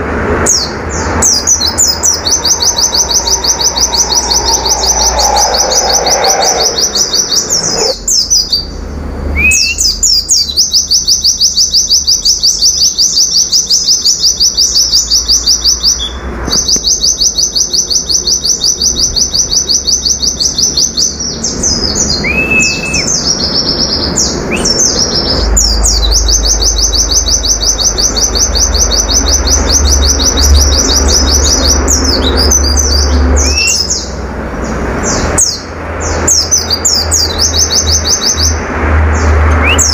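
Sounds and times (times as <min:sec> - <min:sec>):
bird trilling: 0:01.0 - 0:08.7
bird chirps and whistles: 0:01.3 - 0:08.7, 0:09.3 - 0:34.1, 0:39.6 - 0:39.9.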